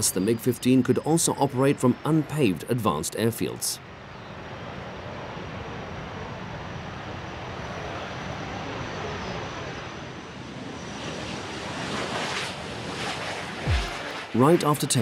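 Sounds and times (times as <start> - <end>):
high jet whine: 4.3 - 15.0
jet engine roar: 4.4 - 15.0.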